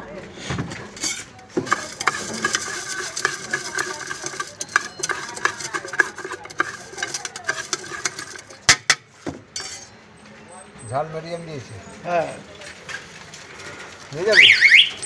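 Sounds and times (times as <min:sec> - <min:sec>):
spoon rattling in steel tin: 0:00.8 - 0:09.9
sharp knocks on tin: 0:01.6 - 0:09.8.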